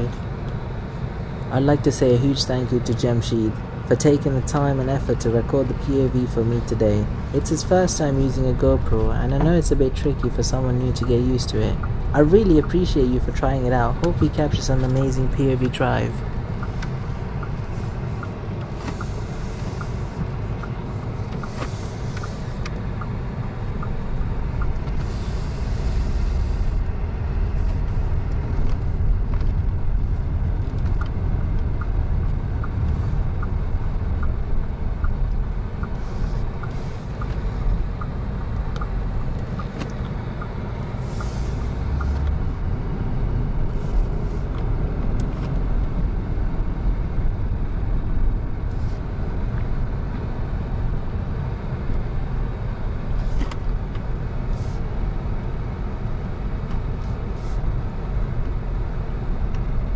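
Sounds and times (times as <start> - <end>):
car engine and road rumble: 0.0 - 59.9
light ticking: 30.6 - 42.8.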